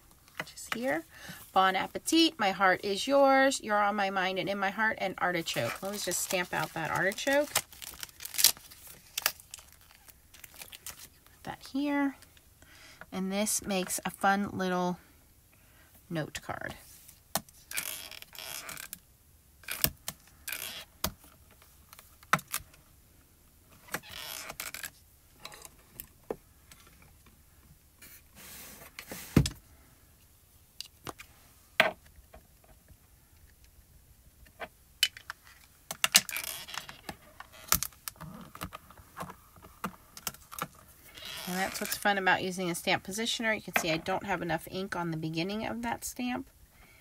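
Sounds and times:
rustling: 5.4 - 11.4.

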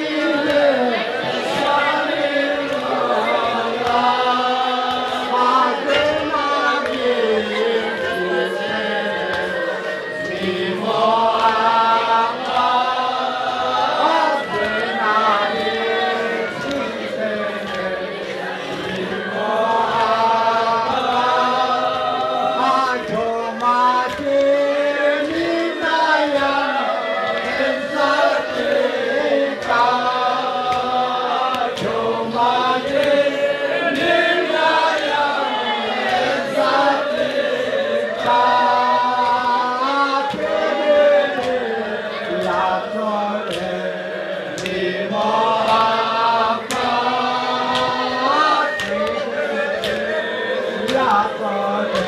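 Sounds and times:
men chanting a devotional song: 0.0 - 52.0.

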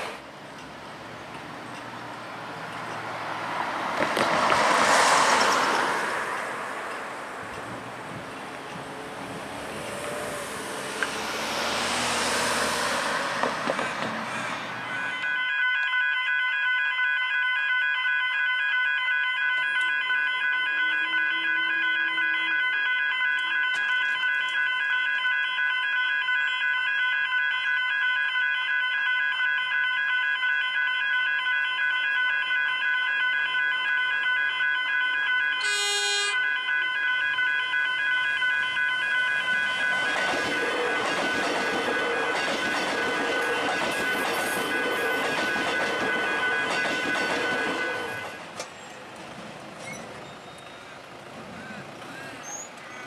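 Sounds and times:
level crossing bells ringing: 14.2 - 48.9
train horn toot: 20.6 - 25.0, 33.6 - 42.4, 43.0 - 48.4.

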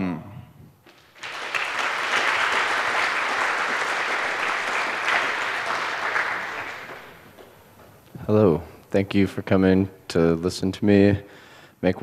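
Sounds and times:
audience applauding: 0.9 - 7.7.

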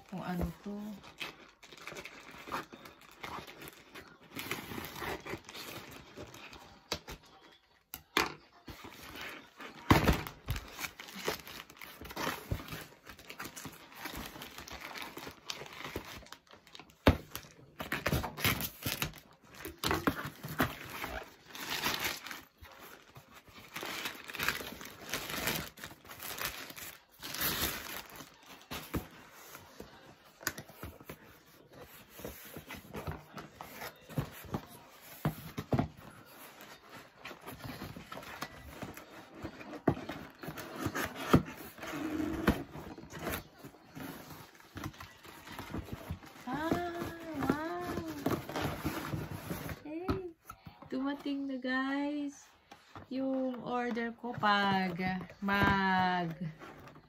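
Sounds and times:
plastic bag crinkling and tearing: 0.8 - 6.6, 9.0 - 29.6.

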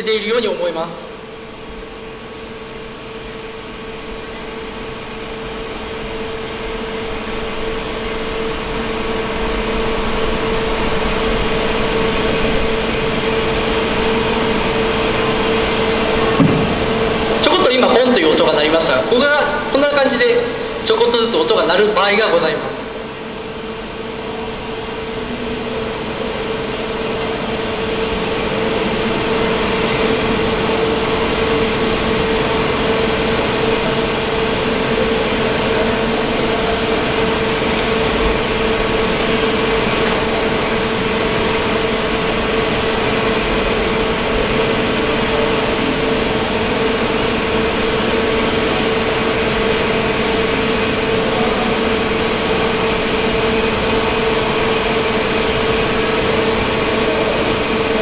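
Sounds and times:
hydraulic press humming: 0.0 - 58.0
strong constant tone: 0.0 - 58.0.

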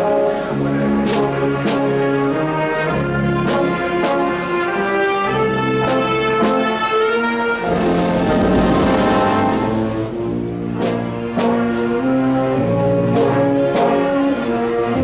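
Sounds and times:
wind band playing a march: 0.0 - 15.0
drum strikes: 7.7 - 10.2
rush of noise: 7.7 - 10.2.

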